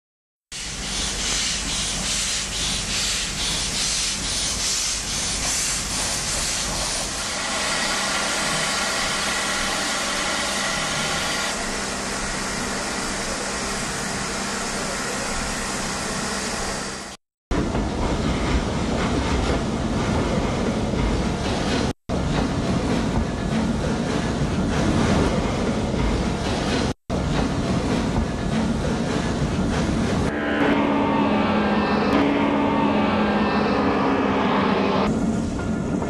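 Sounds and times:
steam locomotive hissing: 0.5 - 17.1.

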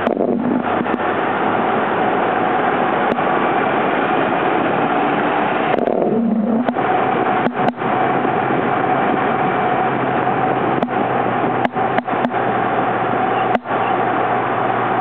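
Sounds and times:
road noise: 0.0 - 15.0
vehicle engine: 0.0 - 15.0
wind noise: 0.0 - 15.0
short low hum: 5.4 - 9.1.

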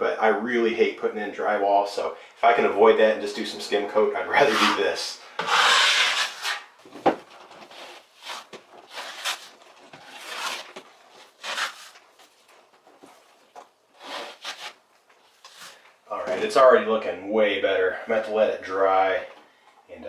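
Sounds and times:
drywall knife scraping compound: 4.3 - 6.8, 7.6 - 12.0, 14.0 - 15.8.

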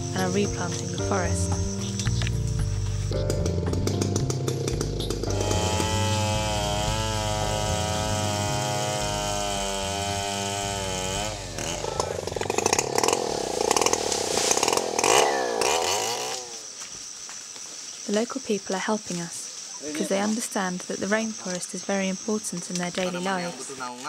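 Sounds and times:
chainsaw cutting wood: 0.2 - 16.9.

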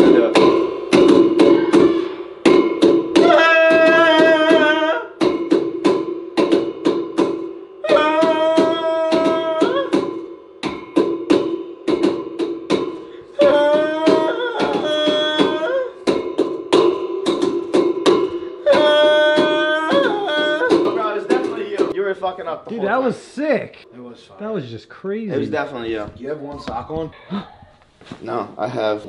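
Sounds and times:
hand drumming on metal bed frame: 0.0 - 22.0
man singing long notes: 3.2 - 5.2, 7.8 - 10.2, 13.3 - 16.1, 18.5 - 21.9.

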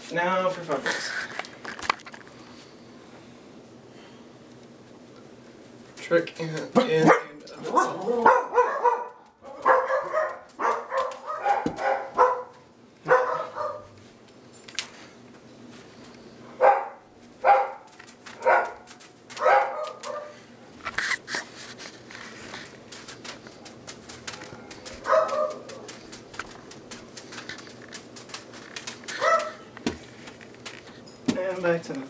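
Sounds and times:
dog barking: 7.0 - 14.0, 16.6 - 20.4, 25.0 - 25.7, 29.2 - 29.6.

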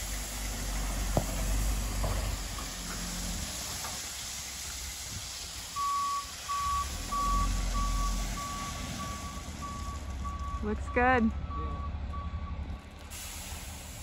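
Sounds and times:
truck engine rumble: 0.0 - 14.0
truck backup alarm beeping: 5.7 - 12.8.

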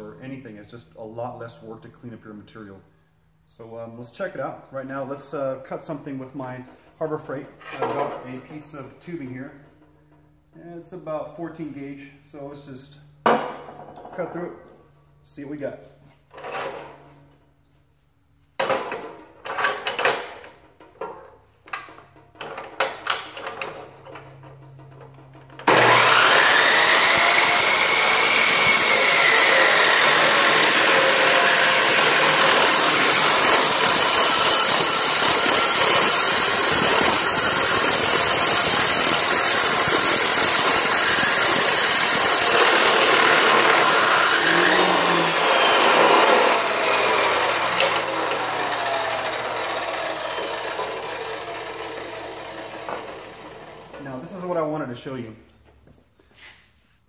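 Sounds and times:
chop saw grinding through steel: 25.6 - 53.9.

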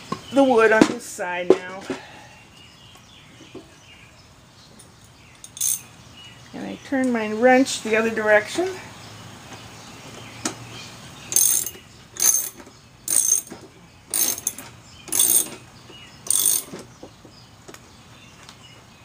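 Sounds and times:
ratcheting wrench clicking: 5.4 - 5.8, 11.3 - 15.6, 16.2 - 16.8.

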